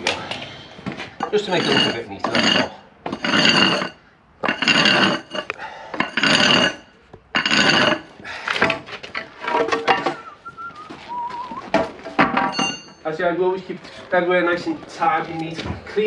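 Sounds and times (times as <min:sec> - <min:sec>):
metal tool scraping concrete: 0:01.2 - 0:08.1.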